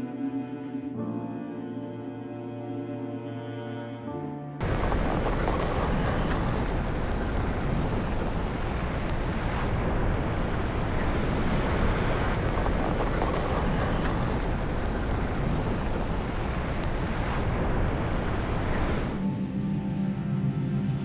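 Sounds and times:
lava roaring and rushing: 4.6s - 19.3s.

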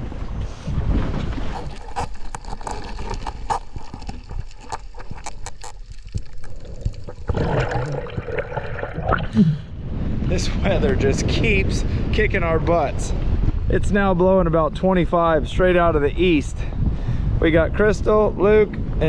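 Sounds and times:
water sloshing and splashing: 0.0s - 9.8s
sharp clicks and crackles: 1.6s - 7.3s.

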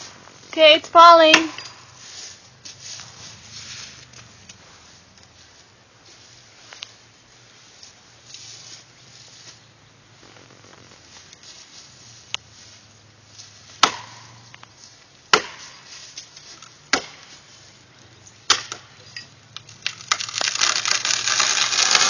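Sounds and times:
axe chopping tree trunk: 13.8s - 14.6s, 15.3s - 15.9s, 16.9s - 17.4s, 18.4s - 18.9s, 19.9s - 22.0s
tree trunk cracking and falling: 19.5s - 22.0s.

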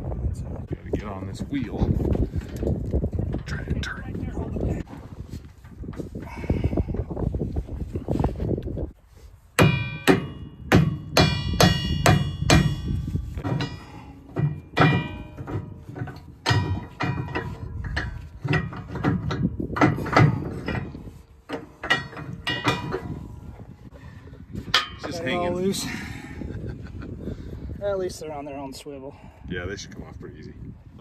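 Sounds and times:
wrench clanking on metal: 9.6s - 23.7s, 24.7s - 25.4s.

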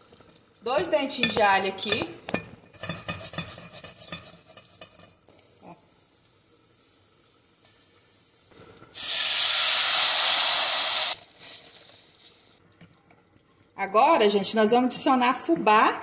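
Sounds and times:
garlic sizzling in fat: 2.8s - 12.6s
water hissing into hot pot: 2.8s - 12.6s.

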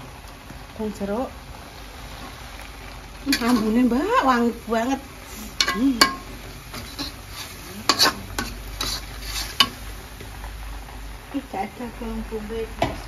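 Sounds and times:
spice paste sizzling in pan: 0.0s - 13.0s
utensil scraping and clinking pan: 3.3s - 3.9s, 5.4s - 9.8s.

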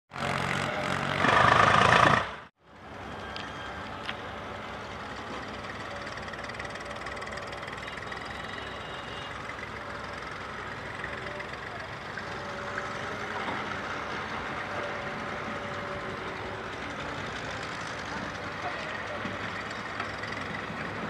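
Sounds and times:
close engine noise: 0.1s - 21.0s
diesel tractor engines running: 0.1s - 21.0s.

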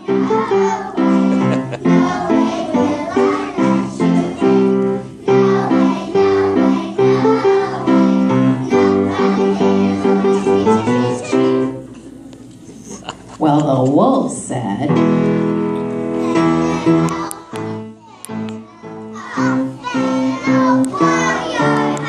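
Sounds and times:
children singing: 0.0s - 11.8s, 16.2s - 22.0s
instrumental accompaniment: 0.0s - 12.1s, 14.9s - 22.0s.

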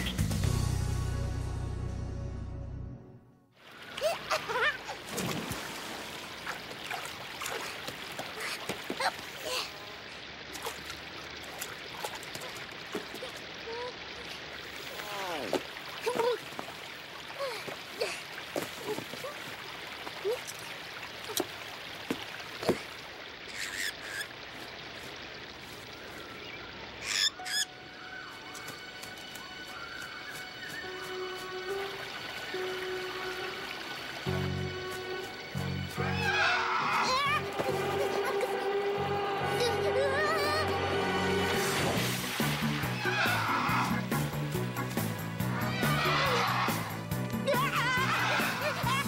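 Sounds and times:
theme music: 0.0s - 3.5s, 30.9s - 49.0s
fountain water splashing: 3.6s - 27.1s, 28.7s - 35.9s, 37.1s - 49.0s
bird squawks: 23.5s - 24.3s, 27.0s - 28.6s
cartoon fly squeaky chirps: 23.5s - 24.3s, 27.0s - 27.7s.

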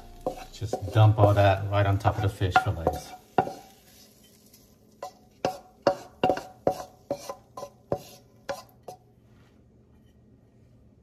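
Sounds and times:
spatula knocking on frying pan: 0.2s - 1.4s, 2.5s - 3.7s, 5.0s - 9.0s.

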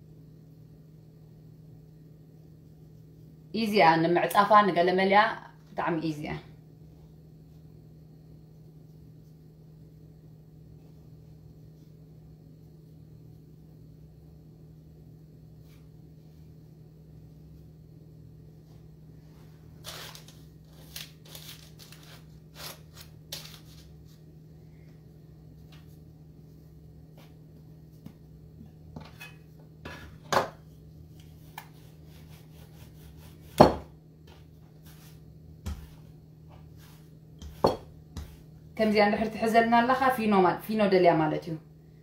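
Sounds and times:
low steady hum: 0.0s - 42.0s
hands kneading dough on board: 25.5s - 38.6s.

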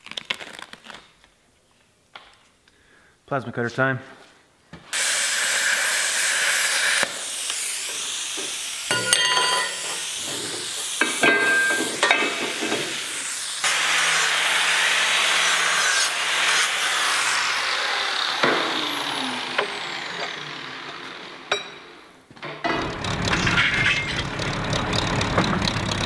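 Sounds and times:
plasma cutter hissing: 4.9s - 19.8s
angle grinder grinding steel: 4.9s - 25.6s.

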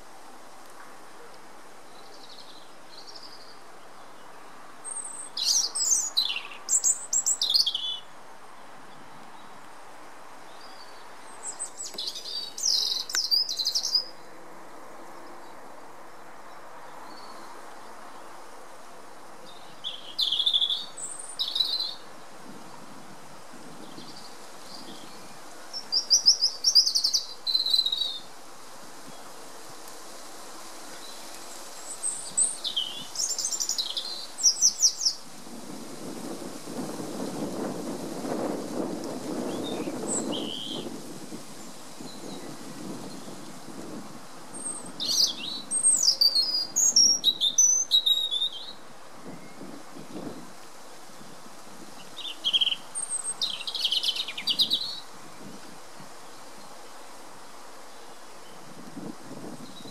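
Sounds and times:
robin singing: 1.9s - 8.6s, 10.5s - 14.3s, 19.5s - 22.2s, 23.8s - 28.3s, 31.8s - 35.2s, 39.4s - 40.9s, 44.5s - 50.4s, 52.0s - 55.1s.

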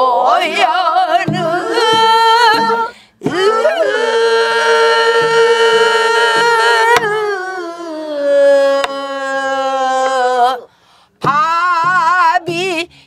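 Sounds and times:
woman singing: 0.0s - 13.0s.

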